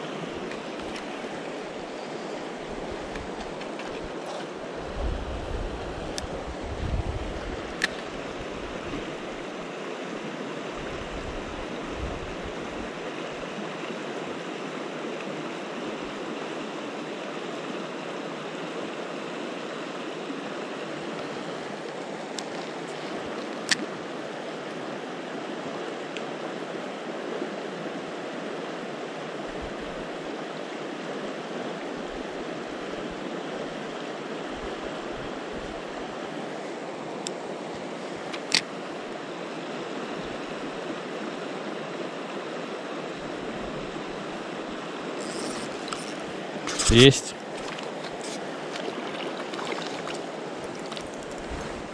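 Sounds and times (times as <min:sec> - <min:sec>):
mountain river rushing: 0:00.0 - 0:51.9
low wind rumble on microphone: 0:04.7 - 0:09.6, 0:10.7 - 0:13.0, 0:50.6 - 0:51.9.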